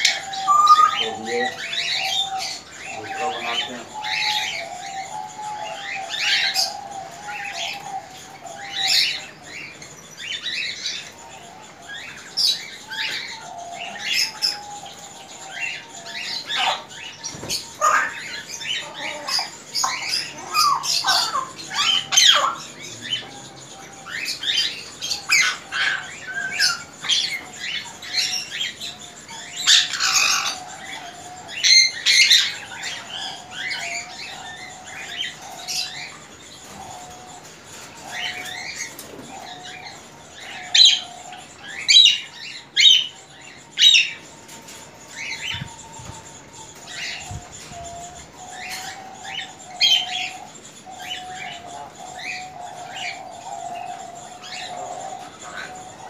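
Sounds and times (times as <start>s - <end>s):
caged birds chirping and squawking: 0.0s - 56.0s.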